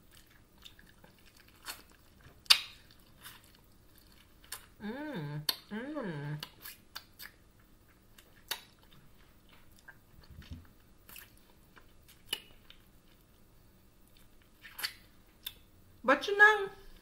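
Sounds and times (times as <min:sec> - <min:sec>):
faint chewing and biting: 0:00.0 - 0:04.8, 0:06.4 - 0:15.7
mouth smacks and clicks: 0:01.1 - 0:02.9, 0:05.4 - 0:05.7, 0:06.4 - 0:07.4, 0:08.2 - 0:08.9, 0:14.6 - 0:15.6.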